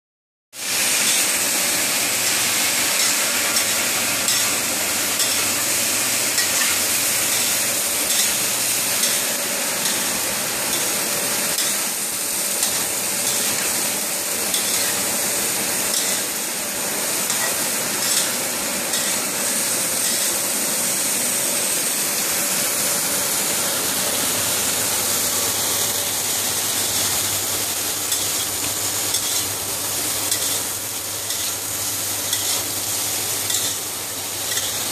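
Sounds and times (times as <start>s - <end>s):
vegetables sizzling in wok: 0.6s - 34.9s
spatula scraping metal wok: 2.2s - 5.7s, 6.3s - 13.8s, 14.4s - 15.2s, 15.8s - 16.4s, 17.2s - 20.5s, 28.1s - 29.6s, 30.2s - 31.6s, 32.3s - 32.7s, 33.5s - 33.8s, 34.4s - 34.9s.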